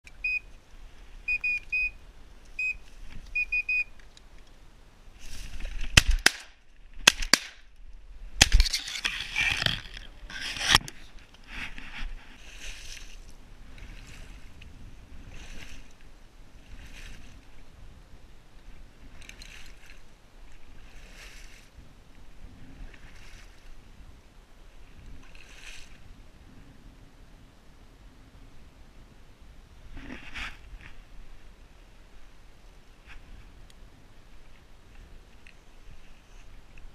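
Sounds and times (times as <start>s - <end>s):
short high-pitched beeps: 0.1s - 0.5s, 1.3s - 2.0s, 2.6s - 2.8s, 3.4s - 4.0s
shotgun shots: 6.0s - 7.6s.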